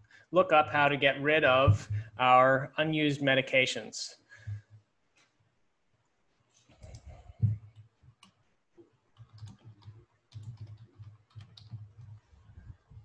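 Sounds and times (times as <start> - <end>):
computer keyboard typing: 9.2 - 12.5.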